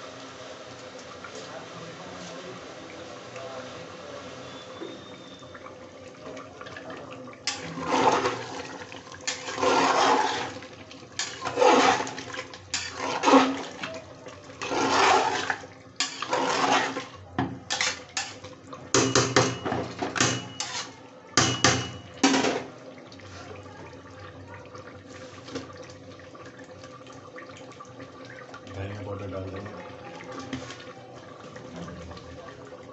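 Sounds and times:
broth sloshing: 4.7 - 18.5
ladle clinking against pot: 17.7 - 22.7.

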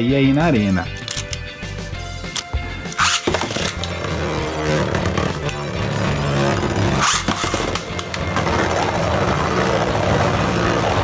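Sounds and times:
tops clicking together: 0.9 - 1.5
top launcher zip: 2.3 - 11.0
spinning tops whirring: 2.9 - 11.0.

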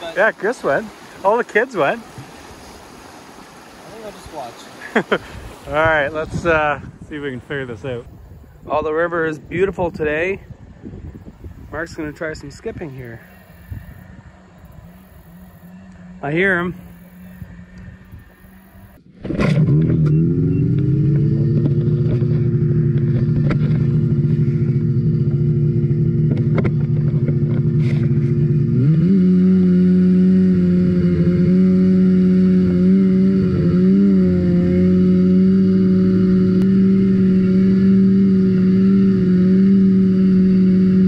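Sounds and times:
snowmobile engine running: 19.2 - 41.0.

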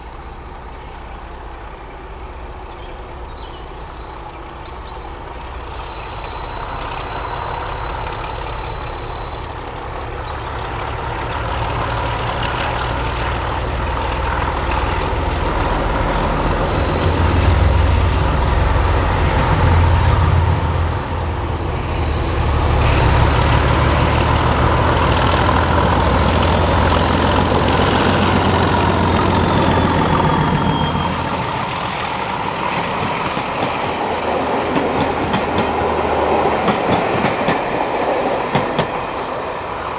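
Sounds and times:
diesel locomotive engine running: 0.0 - 39.9
high whistle rising in pitch: 28.3 - 32.6.

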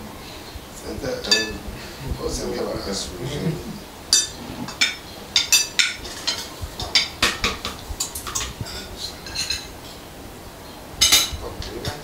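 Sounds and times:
metal utensil clinking on pot: 1.3 - 1.6, 11.0 - 12.0.

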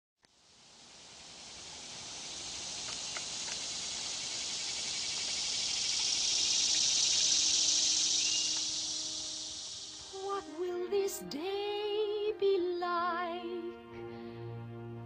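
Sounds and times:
high-pitched insect-like chorus: 0.3 - 11.2.

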